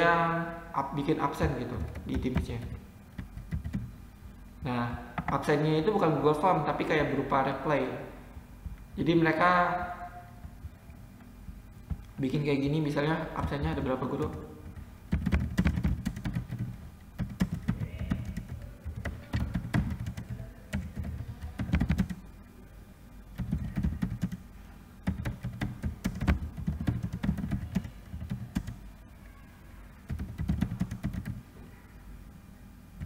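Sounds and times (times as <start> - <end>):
keyboard typing clicks: 1.8 - 3.9, 14.2 - 22.2, 23.4 - 24.4, 25.0 - 28.8, 30.1 - 31.4.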